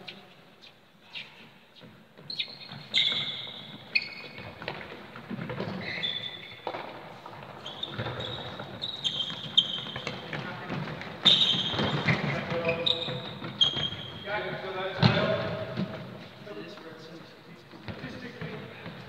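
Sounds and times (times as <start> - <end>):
trainers squeaking on floor: 1.0 - 16.4
ball kicked and bounced: 2.2 - 14.1, 15.0 - 16.2.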